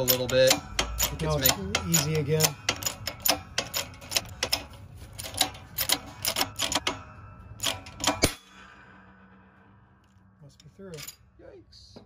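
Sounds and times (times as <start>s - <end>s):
low rumble: 4.8s - 12.0s.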